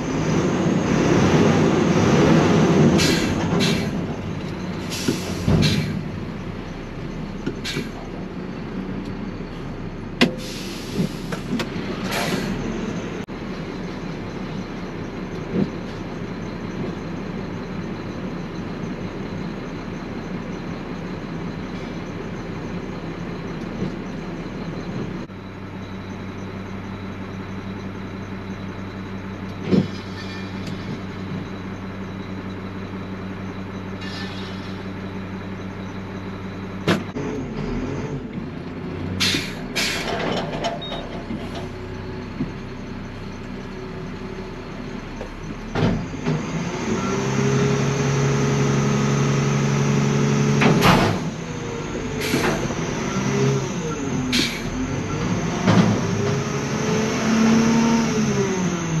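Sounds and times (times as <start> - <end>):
diesel truck engine running: 0.0 - 59.0
short hisses: 34.0 - 34.9.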